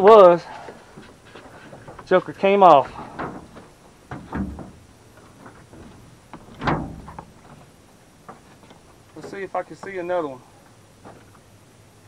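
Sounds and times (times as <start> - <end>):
dull knocks on boat deck: 2.9 - 7.6.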